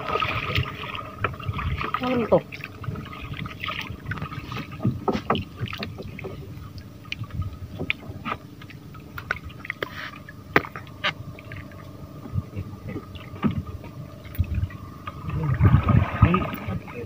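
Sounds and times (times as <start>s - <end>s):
steady hum: 0.0s - 17.0s
water splashing against boat: 0.0s - 17.0s.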